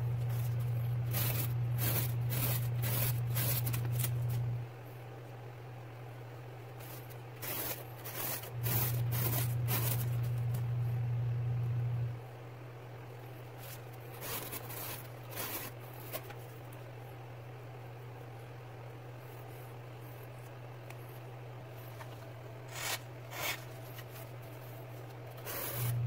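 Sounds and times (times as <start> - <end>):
steady low hum: 0.0 - 26.0
cardboard scraping and rustling: 6.8 - 10.6, 13.6 - 16.4, 21.9 - 26.0.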